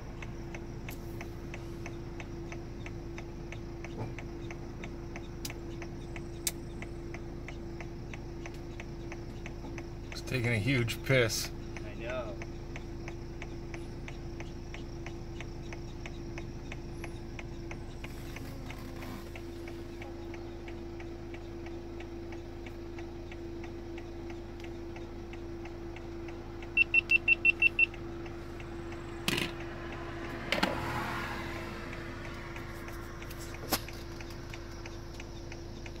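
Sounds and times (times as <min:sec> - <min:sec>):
indicator flasher ticking: 0:00.0 - 0:18.2, 0:19.2 - 0:36.0
vehicle idling hum: 0:00.0 - 0:36.0
high warning chime beeps: 0:26.7 - 0:28.0.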